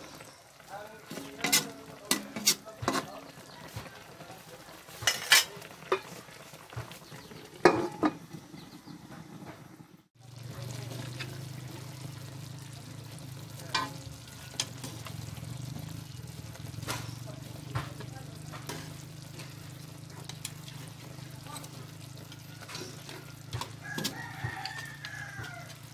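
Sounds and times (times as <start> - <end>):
sauce sizzling and bubbling in a wok: 0.0 - 25.9.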